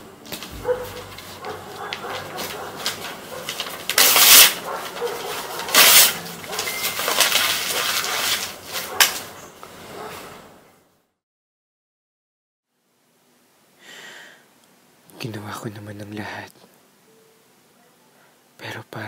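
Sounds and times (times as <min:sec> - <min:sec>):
paper rustling: 0:00.2 - 0:10.2
paper ripping: 0:00.3 - 0:09.4.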